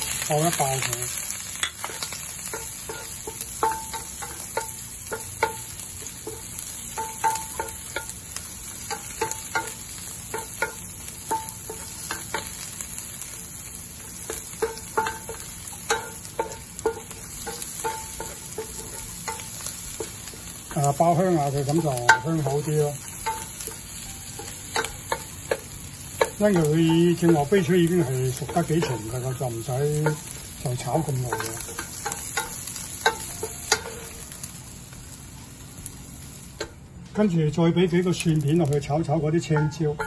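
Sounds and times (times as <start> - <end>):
mussels sizzling in oil: 0.0 - 40.0
spatula knocking and scraping pan: 1.6 - 12.6, 14.2 - 34.2, 39.4 - 40.0.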